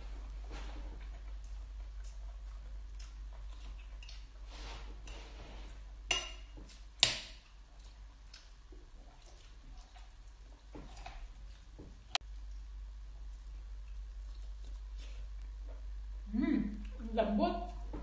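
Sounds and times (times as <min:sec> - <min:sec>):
soft eating sounds: 0:00.0 - 0:18.0
cutlery clinking on glass bowl: 0:06.1 - 0:06.6.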